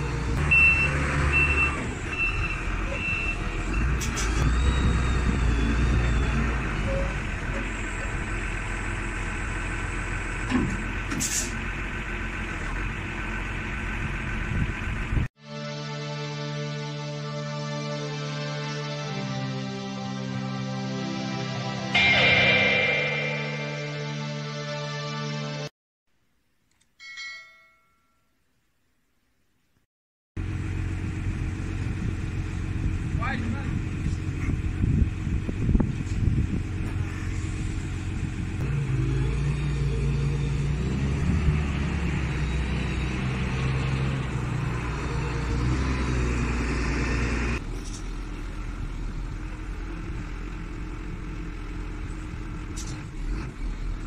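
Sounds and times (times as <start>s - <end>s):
diesel forklift engine running: 0.0s - 15.3s, 30.4s - 54.0s.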